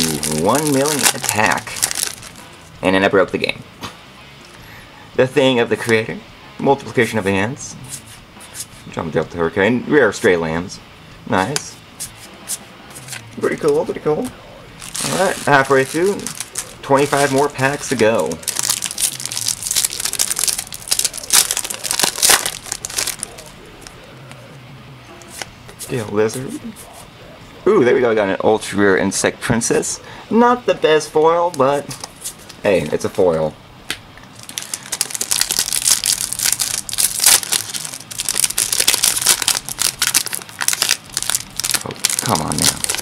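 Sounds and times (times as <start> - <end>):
foil pack tearing and crinkling: 0.0 - 2.4, 14.8 - 23.5, 34.4 - 43.0.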